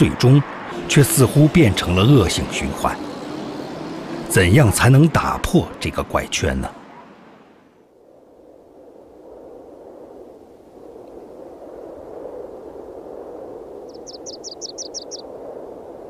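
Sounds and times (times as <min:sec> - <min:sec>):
bird trilling: 0:13.9 - 0:15.2.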